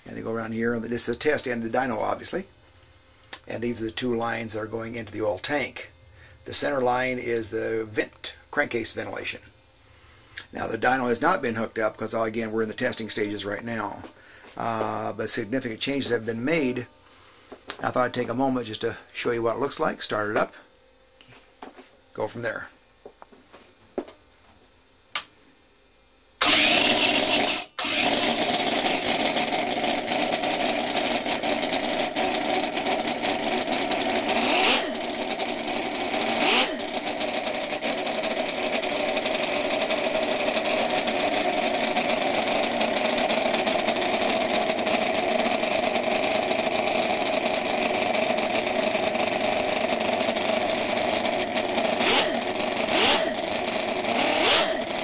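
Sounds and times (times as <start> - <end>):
engine starting and running loudly: 26.4 - 55.0.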